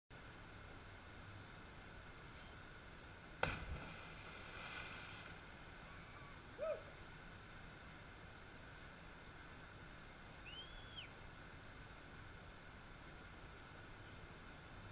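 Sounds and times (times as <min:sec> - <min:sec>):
water splashing and bubbling: 0:03.4 - 0:05.4.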